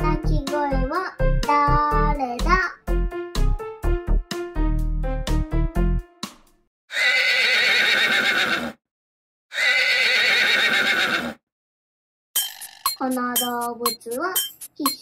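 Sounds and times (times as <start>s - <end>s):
children's music jingle: 0.0s - 6.6s, 12.4s - 15.0s
horse whinnying: 6.9s - 8.8s, 9.5s - 11.4s.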